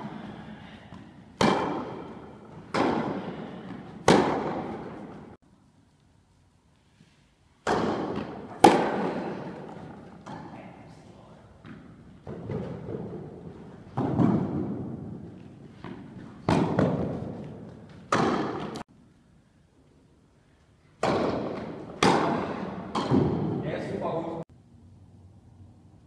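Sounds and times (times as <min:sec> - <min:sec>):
tennis ball hits echoing: 0:00.0 - 0:05.4, 0:07.6 - 0:10.6, 0:11.6 - 0:15.2, 0:15.8 - 0:18.8, 0:21.0 - 0:23.6.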